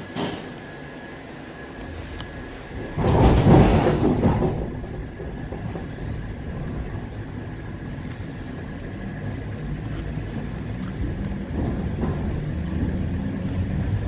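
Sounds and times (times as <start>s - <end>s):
train doors shutting with hiss: 0.0s - 0.8s
electric train running rumble: 0.0s - 14.0s.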